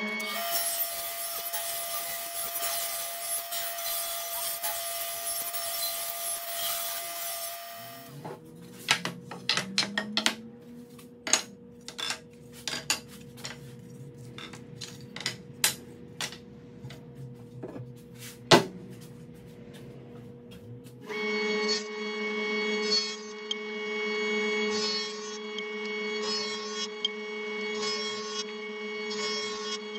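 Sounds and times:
table saw cutting wood: 0:00.0 - 0:08.8, 0:21.0 - 0:29.9
low steady hum: 0:07.7 - 0:21.1.

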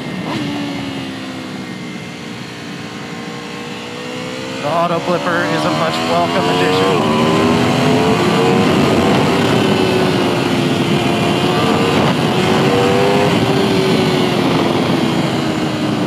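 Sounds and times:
motorcycle engine accelerating: 0:00.0 - 0:16.0
wind rush on microphone: 0:03.6 - 0:16.0.

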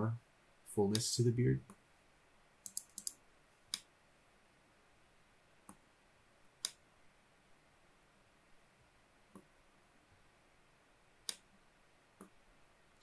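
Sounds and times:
computer mouse clicking: 0:02.6 - 0:03.9, 0:06.6 - 0:06.8, 0:11.2 - 0:11.5.

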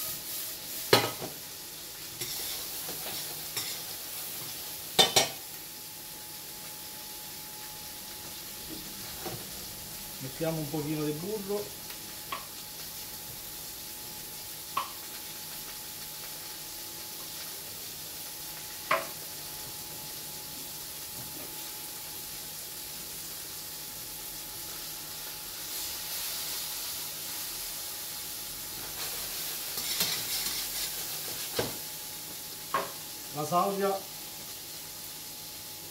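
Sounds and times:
mushrooms sizzling in a pan: 0:00.0 - 0:35.9
tongs clattering in pan: 0:29.7 - 0:31.1.

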